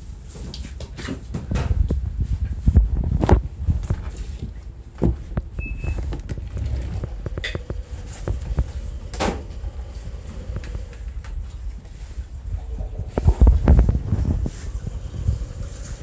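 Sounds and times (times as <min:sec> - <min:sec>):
phone handling rumble: 0:04.9 - 0:11.7.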